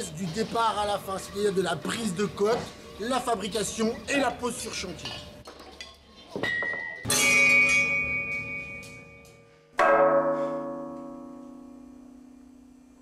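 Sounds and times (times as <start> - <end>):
hammer strikes on anvil ringing: 6.5 - 12.4.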